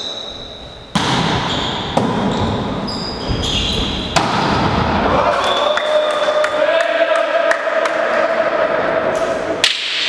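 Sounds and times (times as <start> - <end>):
sneakers squeaking on court: 0.0 - 4.3
volleyball hits: 0.9 - 2.8, 3.8 - 5.2.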